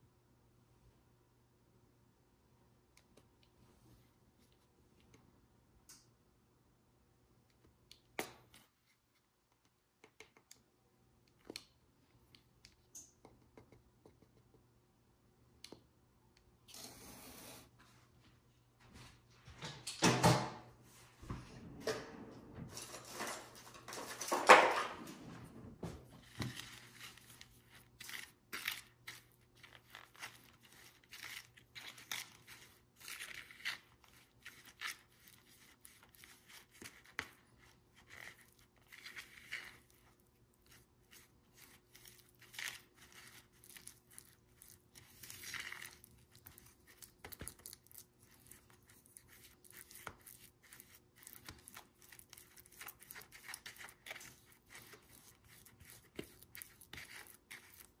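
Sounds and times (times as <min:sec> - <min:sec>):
plastic spoon scraping bowl: 0:26.2 - 0:58.0.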